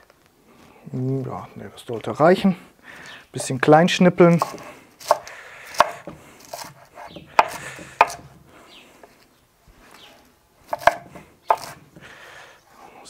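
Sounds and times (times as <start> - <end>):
knife chopping on cutting board: 4.4 - 8.3, 10.7 - 11.8.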